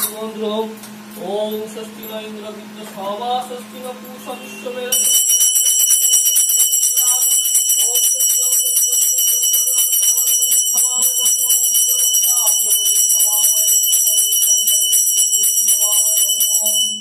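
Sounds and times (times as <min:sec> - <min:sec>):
hand bell ringing rapidly: 0:04.0 - 0:17.0.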